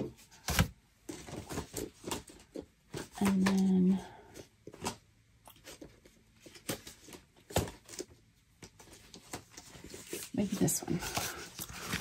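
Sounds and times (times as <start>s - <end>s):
paper rustling: 5.6s - 12.0s.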